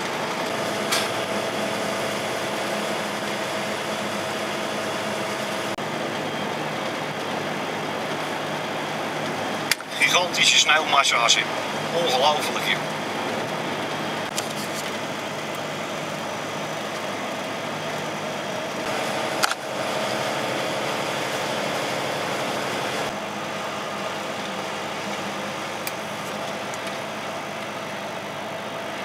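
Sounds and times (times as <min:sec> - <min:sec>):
truck engine and tyre noise: 0:00.0 - 0:29.0.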